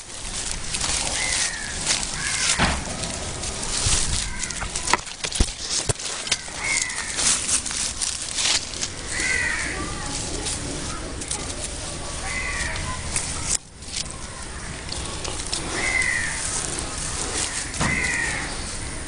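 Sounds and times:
rustling handling noise: 0:00.0 - 0:19.0
crow cawing: 0:01.1 - 0:03.1, 0:04.1 - 0:05.0, 0:06.2 - 0:07.4, 0:09.1 - 0:10.1, 0:12.2 - 0:13.1, 0:14.2 - 0:19.0.

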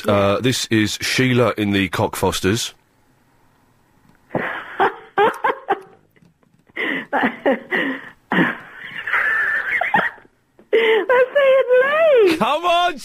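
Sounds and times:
woman laughing over telephone: 0:04.3 - 0:06.0, 0:06.8 - 0:12.4.

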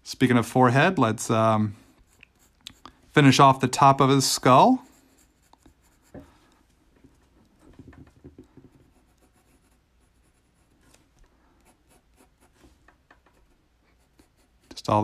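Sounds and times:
pencil scratching on paper: 0:01.8 - 0:03.0, 0:04.4 - 0:06.6, 0:08.6 - 0:15.0.

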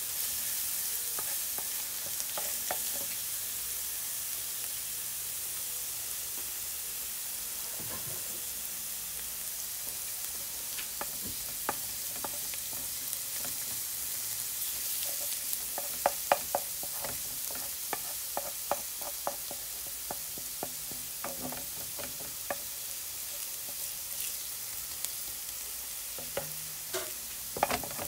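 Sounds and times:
garlic sizzling in oil: 0:00.0 - 0:28.0
spatula tapping against pan: 0:15.7 - 0:22.7.

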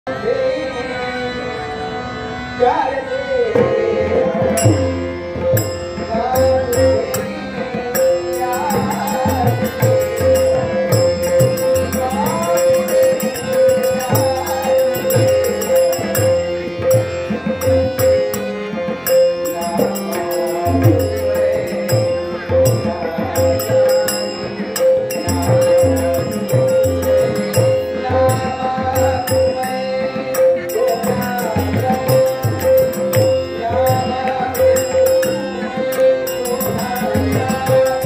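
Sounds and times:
harmonium melody: 0:00.0 - 0:38.0
tabla drumming: 0:03.5 - 0:38.0
small hand cymbals: 0:08.0 - 0:17.0.

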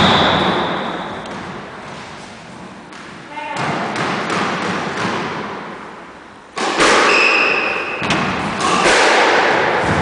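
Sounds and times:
squash ball knocks: 0:02.9 - 0:05.7, 0:08.0 - 0:10.0.

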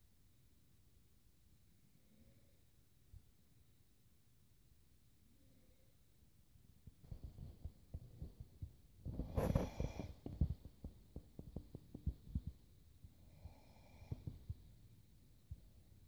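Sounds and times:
rustling scrape: 0:09.1 - 0:10.2.

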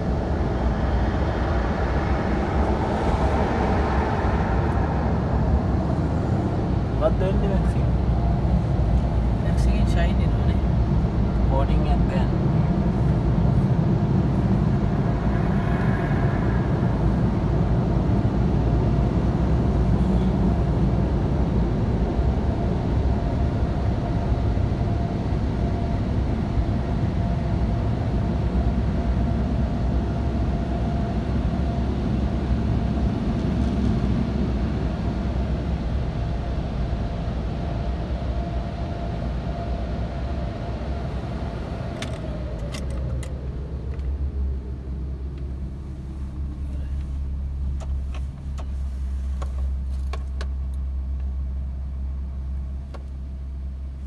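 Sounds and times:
car-wash machinery rumbling: 0:00.0 - 0:54.0
faint steady hum: 0:00.0 - 0:54.0.

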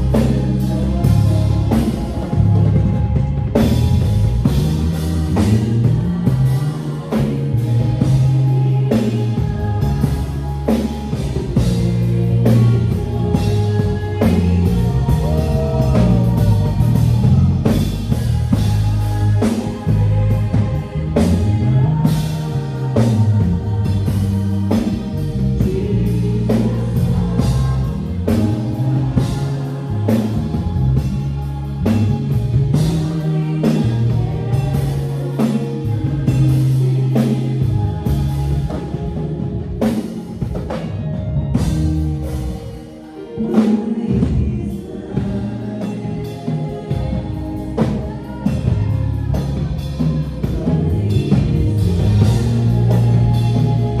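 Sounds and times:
bass guitar: 0:00.0 - 0:54.0
drum kit: 0:00.0 - 0:54.0
guitar: 0:00.0 - 0:54.0.

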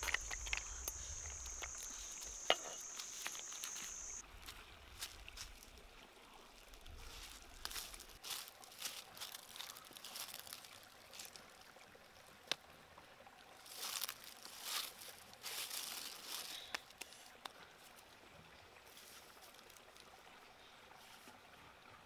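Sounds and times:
clay pots set down on stones: 0:00.0 - 0:04.2
stream trickling: 0:00.0 - 0:22.0
dry leaves crackling and rustling: 0:06.8 - 0:11.4, 0:13.7 - 0:17.2.

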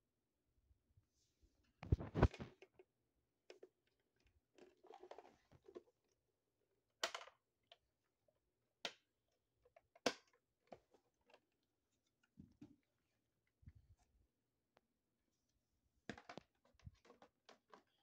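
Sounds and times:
plastic parts clicking and knocking: 0:07.0 - 0:07.5, 0:16.0 - 0:18.0.

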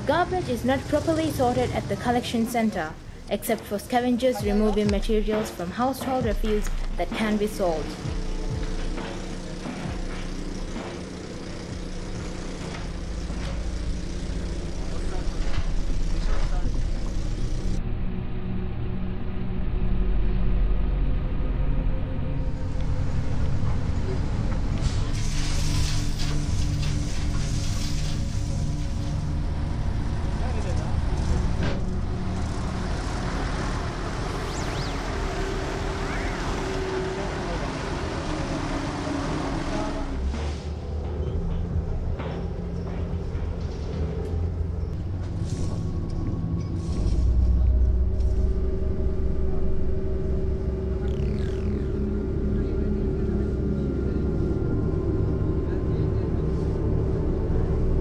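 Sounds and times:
heavy machinery diesel engines: 0:00.0 - 0:17.8, 0:20.9 - 0:58.0
dump truck diesel engines rumbling: 0:27.4 - 0:46.6.

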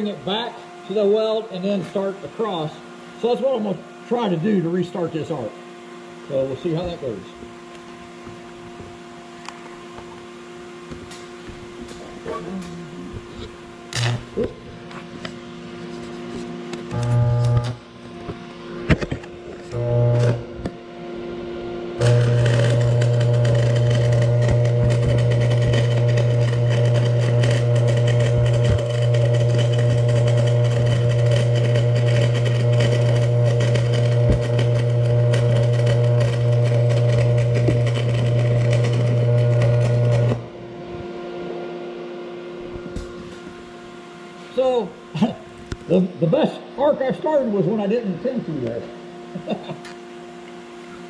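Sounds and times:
welding arc crackling: 0:13.9 - 0:14.6, 0:16.8 - 0:17.8, 0:19.7 - 0:20.5, 0:22.0 - 0:40.4
strong low hum: 0:16.8 - 0:18.0, 0:19.7 - 0:43.8.

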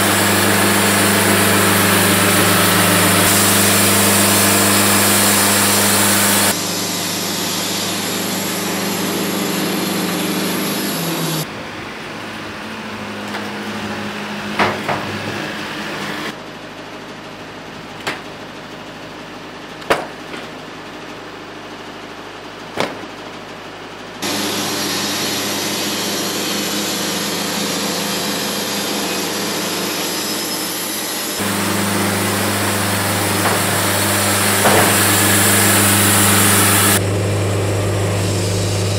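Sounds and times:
sawmill engine and band saw: 0:00.0 - 0:38.9
wooden slabs knocking: 0:19.8 - 0:20.5, 0:22.8 - 0:23.1, 0:33.4 - 0:33.8, 0:34.6 - 0:35.1.

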